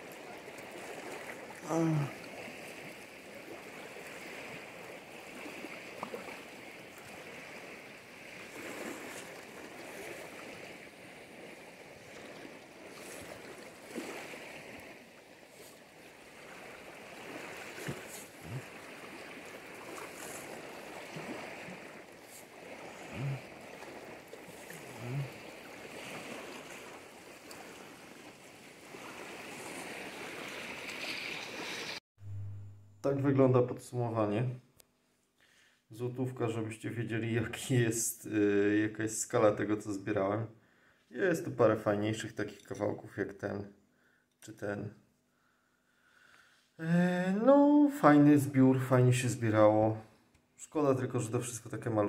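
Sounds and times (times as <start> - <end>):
sea surf washing on shore: 0.0 - 32.0
short low sound: 32.2 - 32.9.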